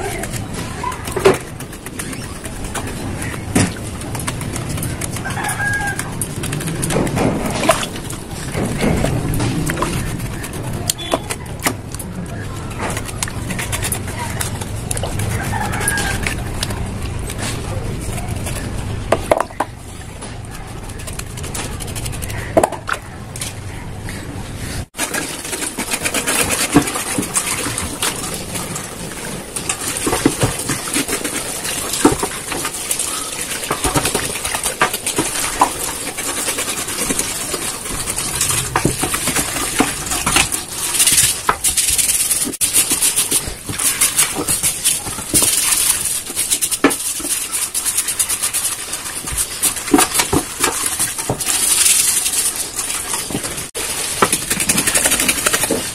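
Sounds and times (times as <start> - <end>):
scrubbing: 0.0 - 55.9
knife scraping hoof: 24.6 - 55.9.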